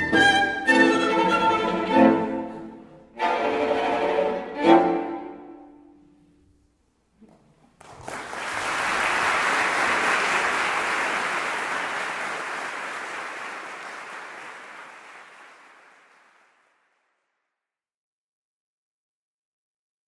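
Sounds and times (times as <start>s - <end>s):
audience applause: 7.8s - 17.0s.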